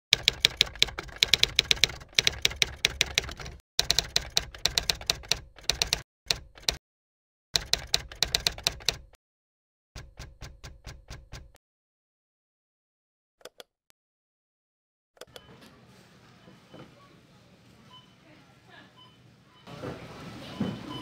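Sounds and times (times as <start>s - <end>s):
typewriter keystrokes clacking: 0.2s - 6.8s, 7.6s - 9.1s, 10.0s - 11.6s.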